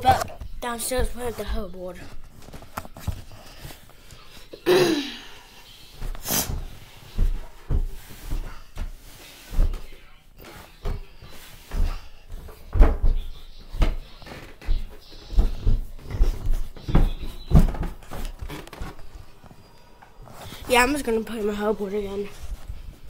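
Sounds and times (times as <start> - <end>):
footsteps thudding down stairs: 6.0 - 9.9, 10.8 - 19.1.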